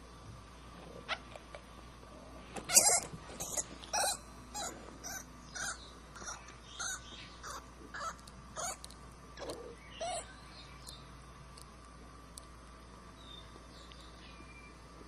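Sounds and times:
rabbit screaming: 2.7 - 10.3.

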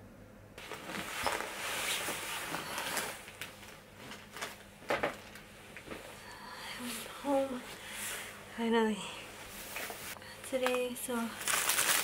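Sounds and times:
coat and bags rustling: 0.6 - 4.6.

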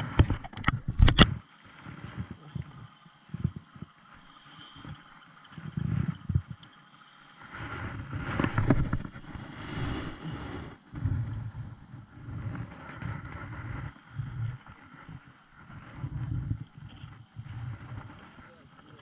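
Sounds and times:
water lapping against boat hull: 0.0 - 19.0
wind buffeting microphone: 7.7 - 18.6.

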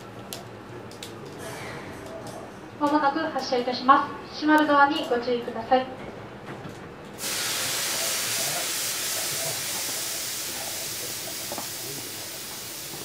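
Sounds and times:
train compressed air hissing: 7.2 - 13.0.

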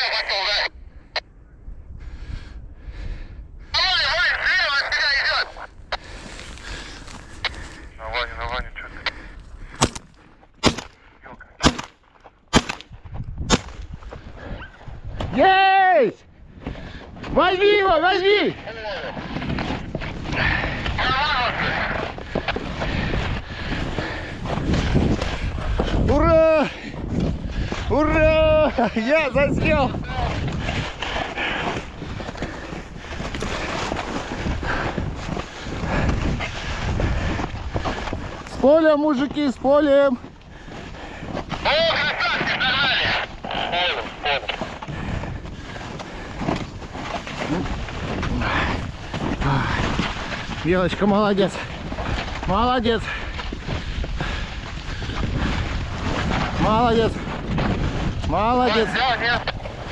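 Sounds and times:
shotgun shots: 10.6 - 11.0, 11.6 - 12.9, 13.5 - 13.8
wind buffeting microphone: 12.4 - 59.9.

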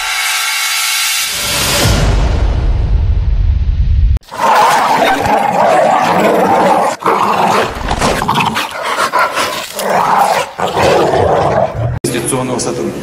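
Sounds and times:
dog growling and barking: 4.2 - 12.0.

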